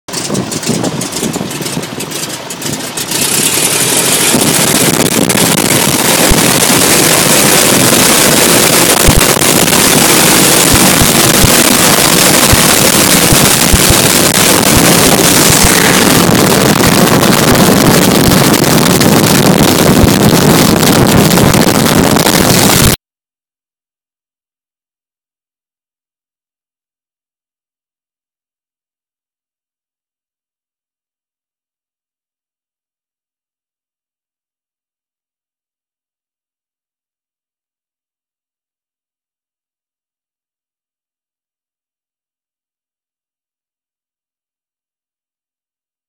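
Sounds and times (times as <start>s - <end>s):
heavy wind rush: 0.1s - 23.0s
propeller engine droning: 0.1s - 23.0s.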